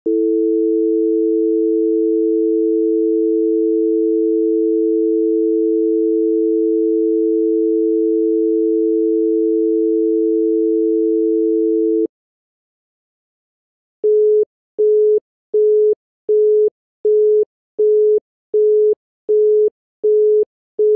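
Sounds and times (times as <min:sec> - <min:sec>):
telephone dial tone: 0:00.1 - 0:05.1, 0:14.0 - 0:20.9.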